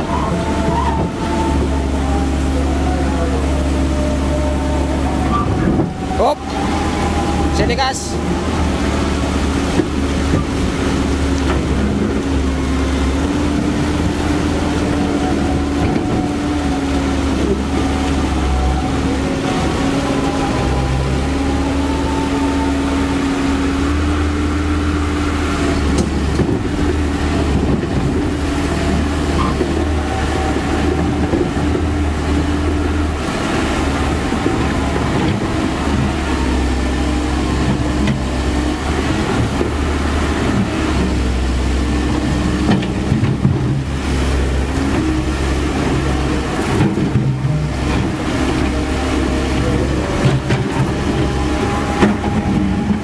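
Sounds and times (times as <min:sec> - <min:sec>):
excavator diesel engine running: 0:00.0 - 0:53.0
river water flowing over weir: 0:00.0 - 0:53.0.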